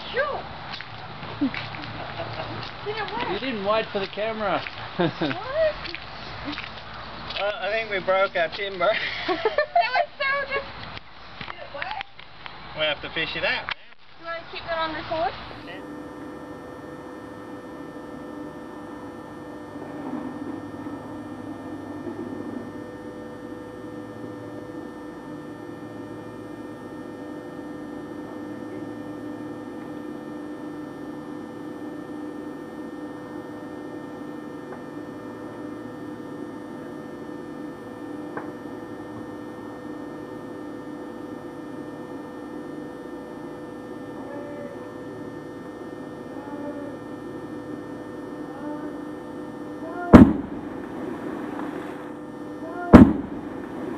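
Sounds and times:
steady tonal hum: 0.0 - 53.9.

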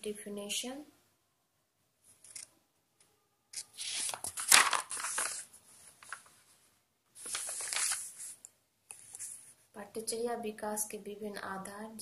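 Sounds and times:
paper pages rustling: 3.6 - 6.6, 7.2 - 9.6.

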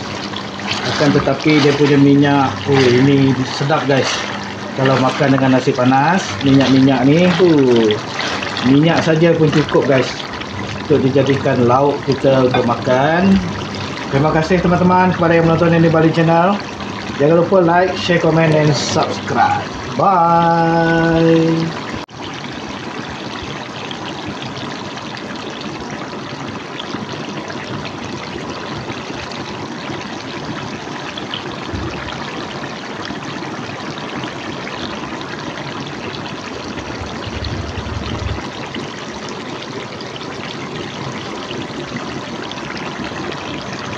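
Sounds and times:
duck bubbling and sizzling in pot: 0.0 - 43.9
low bumps: 36.9 - 38.5.

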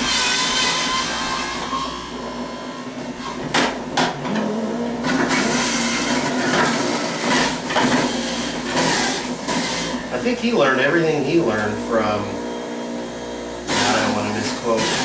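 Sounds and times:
juicer motor humming: 0.0 - 15.0
carrots shredding: 4.3 - 10.3, 13.7 - 15.0.

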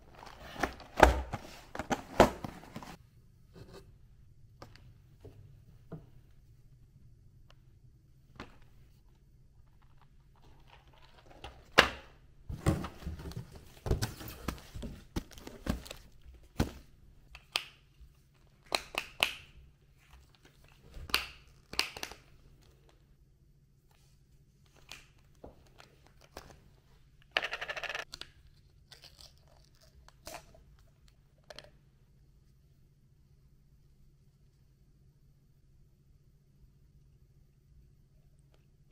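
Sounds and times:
objects being handled: 0.0 - 3.0, 8.3 - 11.8, 12.5 - 17.7.

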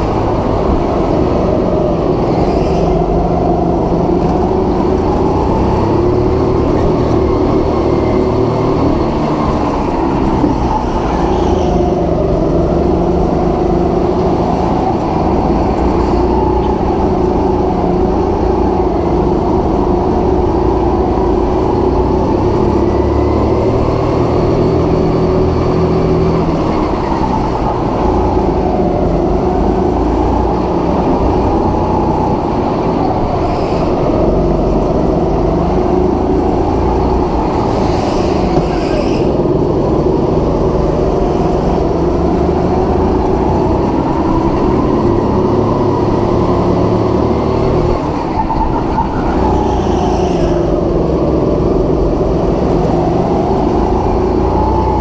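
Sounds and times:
go-kart engine running: 0.0 - 55.0.

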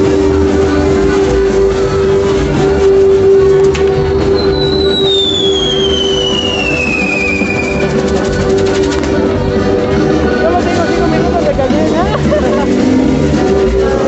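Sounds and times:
firework crackling: 0.0 - 9.6
music with drums: 0.0 - 14.0
firework whistle falling in pitch: 4.2 - 8.0
firework sharp crack: 4.8 - 8.1.

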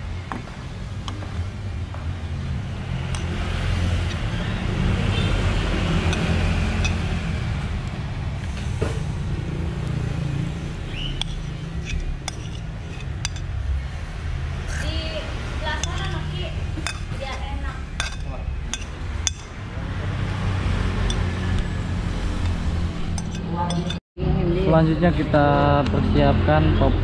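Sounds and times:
metal spoon scraping a plate: 6.1 - 7.1, 11.1 - 13.6, 15.7 - 19.6, 21.0 - 21.4, 23.0 - 24.0.

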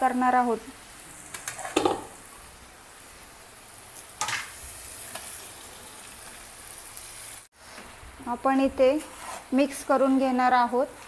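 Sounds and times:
oil sizzling in a pan: 0.0 - 11.0.

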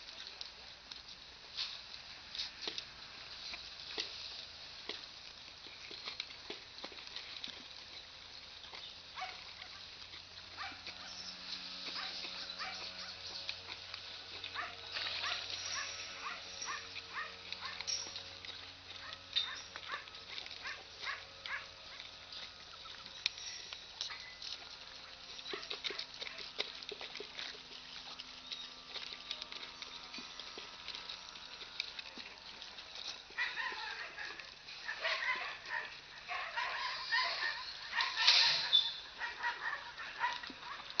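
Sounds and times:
farm animal calls: 10.5 - 41.0.

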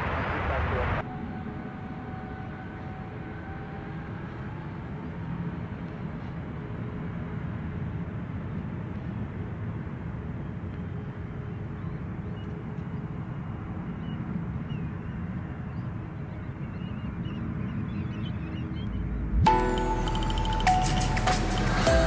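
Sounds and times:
jet airliner landing rumble: 0.0 - 22.0.

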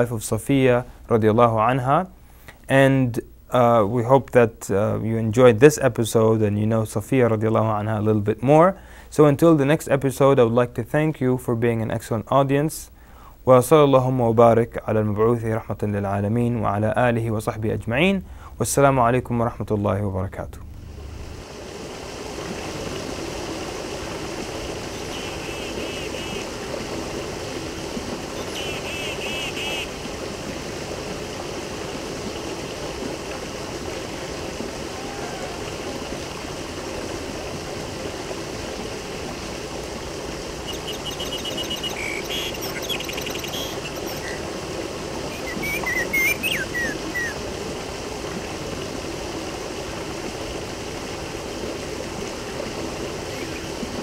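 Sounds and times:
water flowing: 0.0 - 54.0
birds chirping: 24.8 - 26.5, 28.3 - 29.9, 40.6 - 44.4, 45.3 - 47.4, 53.3 - 53.8.

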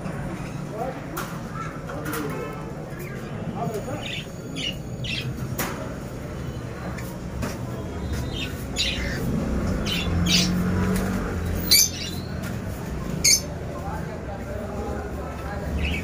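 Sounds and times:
parrots squawking and chirping: 3.1 - 5.4, 8.3 - 10.7, 11.5 - 12.3, 13.2 - 13.5.

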